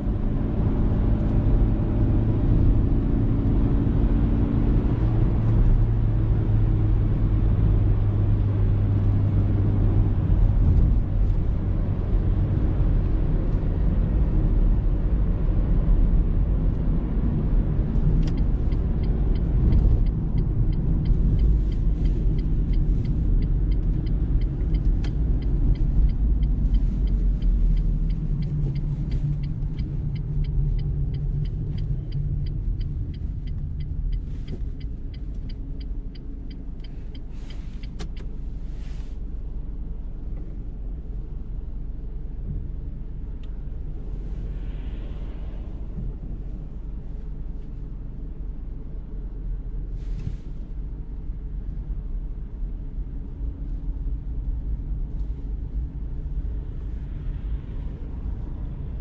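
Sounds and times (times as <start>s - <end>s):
car engine rumbling: 0.0s - 59.0s
light regular ticking: 18.0s - 38.8s.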